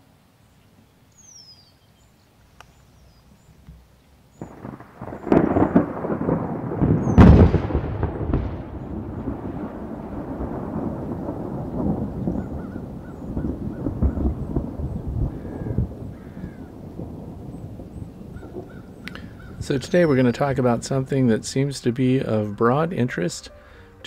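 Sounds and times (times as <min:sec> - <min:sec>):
thunder rumbling: 0:04.3 - 0:23.8
thunder cracks: 0:04.4 - 0:22.8.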